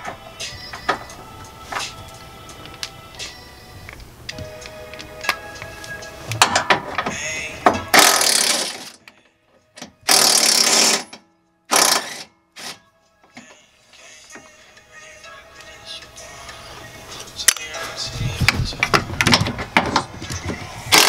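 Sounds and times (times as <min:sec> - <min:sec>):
cordless power tool spinning bolts: 0:08.0 - 0:09.0, 0:10.1 - 0:11.1, 0:11.7 - 0:12.8.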